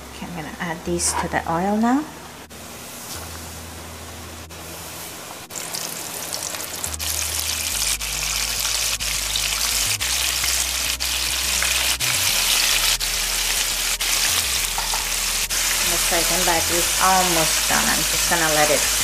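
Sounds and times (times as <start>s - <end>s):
fish frying in sizzling oil: 4.6s - 19.0s.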